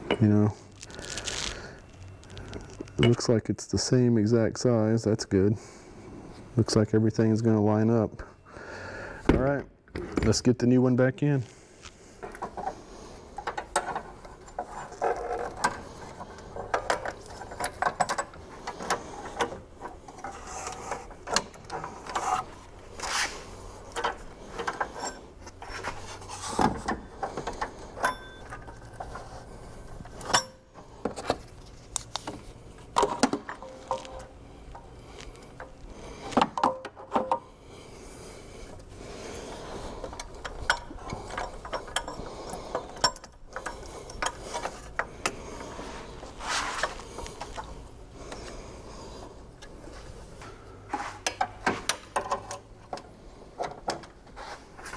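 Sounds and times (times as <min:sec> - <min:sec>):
hand tools clicking on metal: 0:40.0 - 0:45.4.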